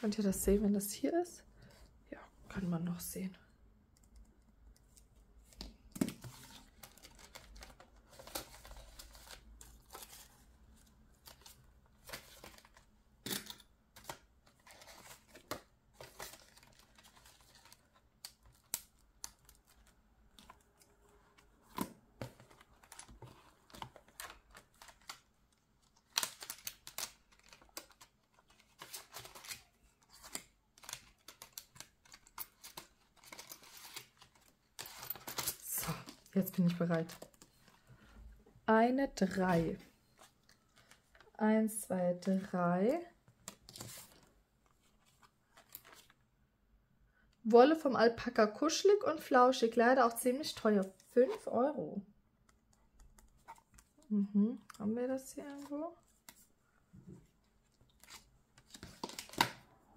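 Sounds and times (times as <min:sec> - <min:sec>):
paper rustling and crinkling: 0:05.4 - 0:12.9, 0:13.9 - 0:38.1, 0:43.4 - 0:46.2, 0:57.2 - 0:59.6.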